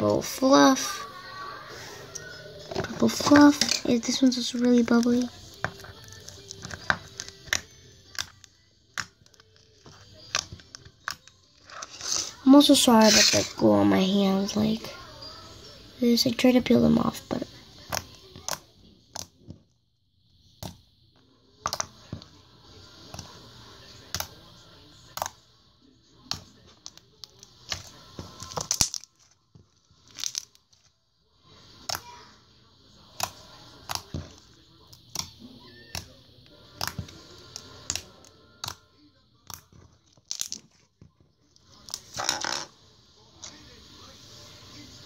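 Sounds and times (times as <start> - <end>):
crackling hiss of slime: 27.3 - 30.9.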